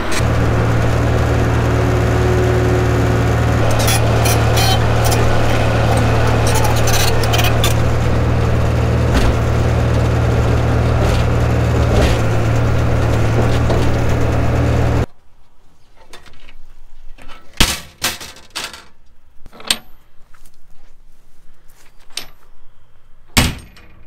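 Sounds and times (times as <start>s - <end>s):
excavator engine running: 0.0s - 15.1s.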